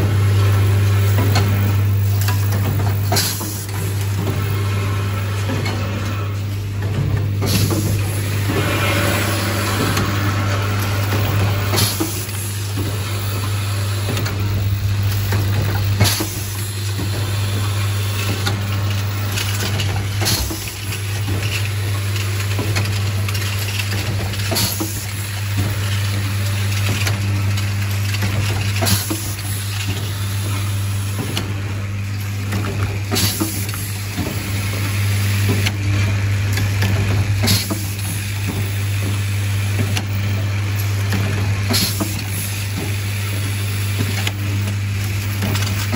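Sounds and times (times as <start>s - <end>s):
machine humming: 0.0s - 45.9s
machine clicks and clacks: 1.0s - 4.5s, 5.2s - 45.9s.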